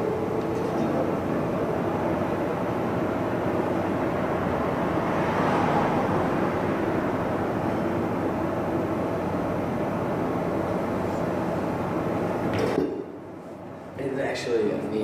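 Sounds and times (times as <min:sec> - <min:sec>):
amplified string noise drone: 0:00.0 - 0:11.5.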